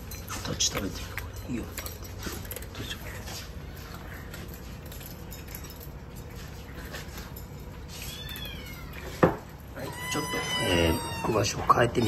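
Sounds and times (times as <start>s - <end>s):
kitten mewing: 9.8s - 12.0s.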